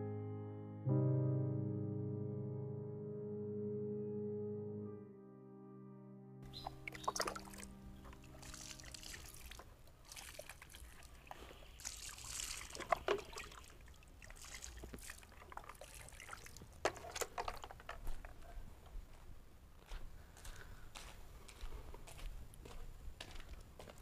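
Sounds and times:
hands scraping sandy soil: 0:08.2 - 0:13.1
small stones clicking: 0:16.7 - 0:18.4.

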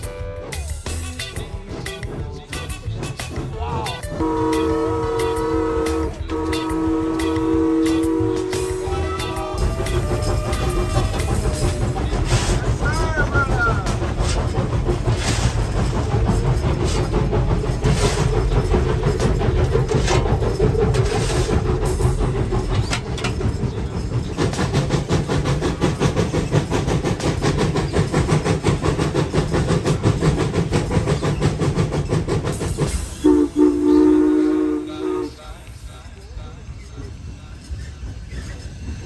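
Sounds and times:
steam locomotive chugging: 0:00.0 - 0:39.0
steam whistle chord: 0:04.1 - 0:11.7, 0:33.2 - 0:35.4.

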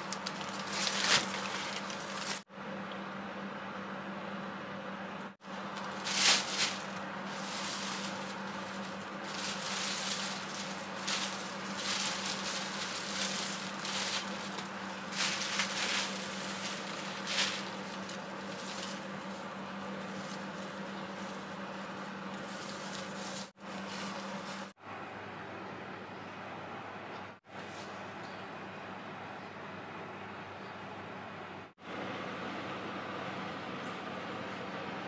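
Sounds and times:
plant foliage rustling: 0:00.0 - 0:02.4, 0:05.5 - 0:24.7
steady low hum: 0:00.0 - 0:35.0.

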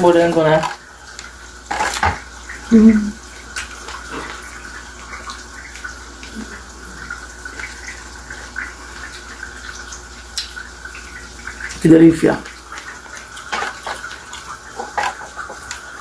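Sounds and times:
tap running into a sink: 0:00.0 - 0:02.3, 0:12.4 - 0:16.0
person humming: 0:02.7 - 0:03.2.

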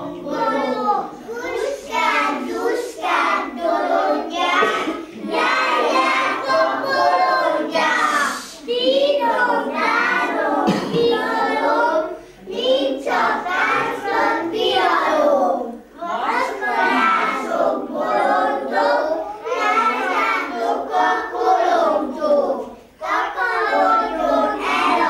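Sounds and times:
children singing: 0:00.0 - 0:25.0.

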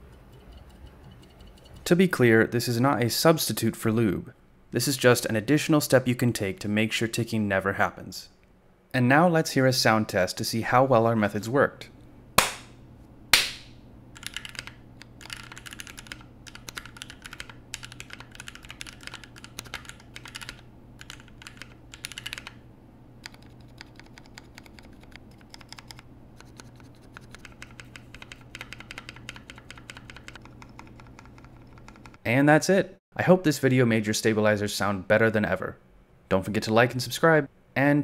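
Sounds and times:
hand clap: 0:12.4 - 0:12.7, 0:13.4 - 0:13.7
typing on mechanical keyboard: 0:14.2 - 0:22.6, 0:23.2 - 0:32.2.

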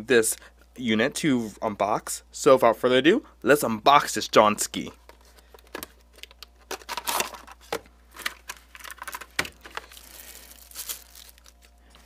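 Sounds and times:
plastic sleeve crinkling: 0:05.0 - 0:12.0.

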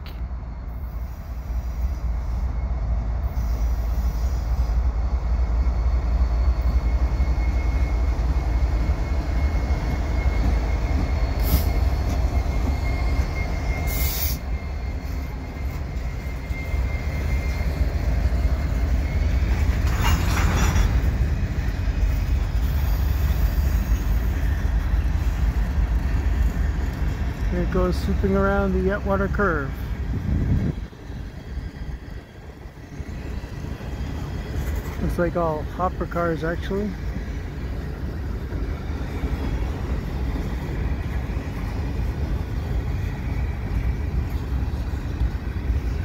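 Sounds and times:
locomotive engine rumble: 0:00.0 - 0:46.0
train cars rolling on rails: 0:00.0 - 0:46.0
high wheel squeal: 0:05.5 - 0:30.0.

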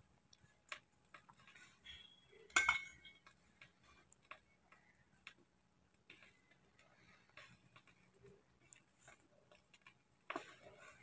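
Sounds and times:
metal spoon clinking steel bowl: 0:01.9 - 0:03.3
faint ticks and clicks: 0:03.2 - 0:11.0.

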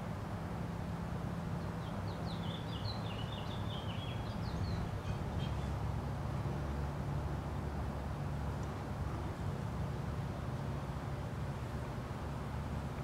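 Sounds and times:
songbird chirping and trilling: 0:01.7 - 0:05.8.

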